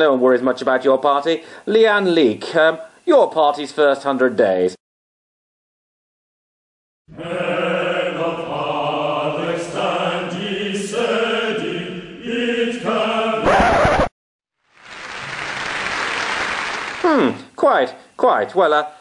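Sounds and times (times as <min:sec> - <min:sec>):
choir chanting: 0:07.1 - 0:13.5
audience applauding: 0:14.8 - 0:17.3.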